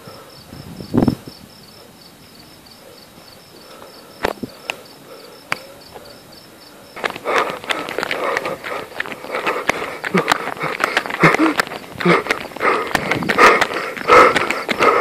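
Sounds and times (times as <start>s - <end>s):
cricket chirping: 0.0s - 15.0s
rustling crackling noise: 7.0s - 15.0s.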